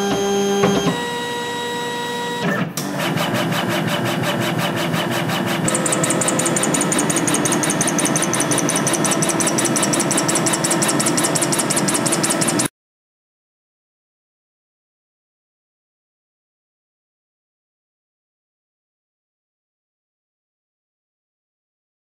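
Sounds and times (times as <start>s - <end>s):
laser engraver carriage shuttling: 2.5s - 12.7s.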